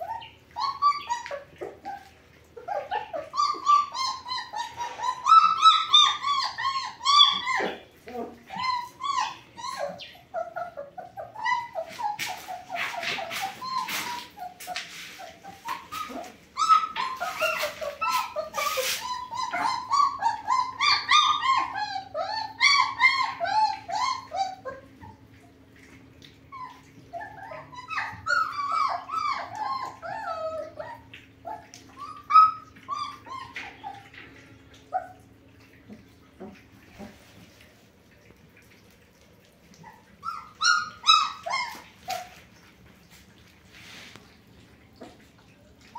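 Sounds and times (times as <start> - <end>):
puppies whining and yipping: 0.0 - 45.9.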